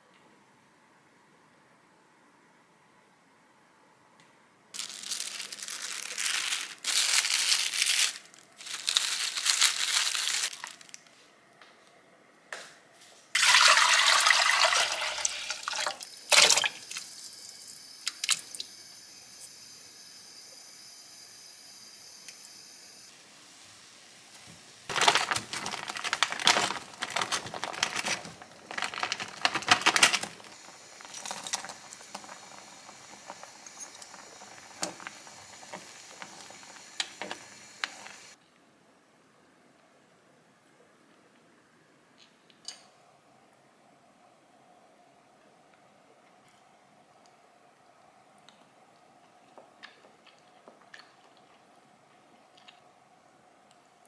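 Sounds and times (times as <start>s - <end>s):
plastic cling wrap crinkling: 4.8s - 11.2s, 24.9s - 38.2s
running water: 13.4s - 17.3s.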